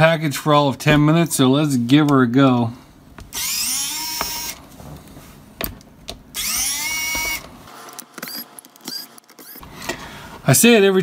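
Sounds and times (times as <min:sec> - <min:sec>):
electric screwdriver whining: 0:03.3 - 0:04.6, 0:06.3 - 0:09.6.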